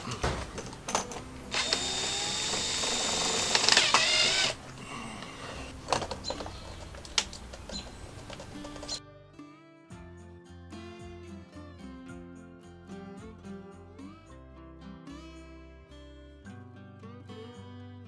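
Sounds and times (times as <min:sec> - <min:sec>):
cordless drill driving screw: 0:01.5 - 0:04.6.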